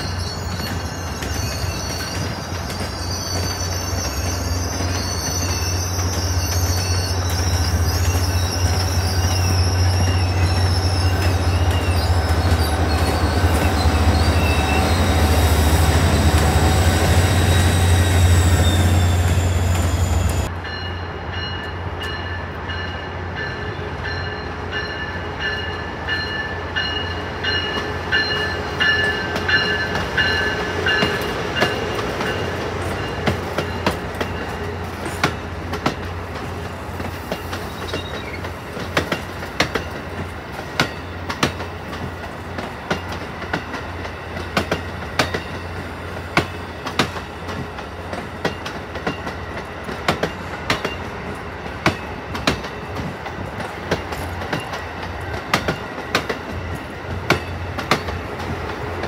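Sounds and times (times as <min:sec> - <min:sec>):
electric train rolling past: 0:00.0 - 0:59.0
wheels clicking over rail joints: 0:27.7 - 0:59.0.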